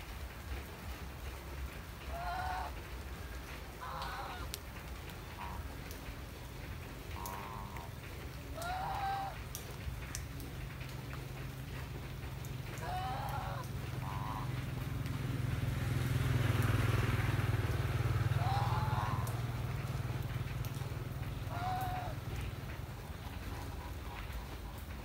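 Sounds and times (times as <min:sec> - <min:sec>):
geese honking: 0:07.2 - 0:07.9, 0:08.6 - 0:09.4, 0:12.8 - 0:14.6, 0:18.3 - 0:19.4, 0:21.5 - 0:22.2
passing vehicle engine drone: 0:11.1 - 0:24.9.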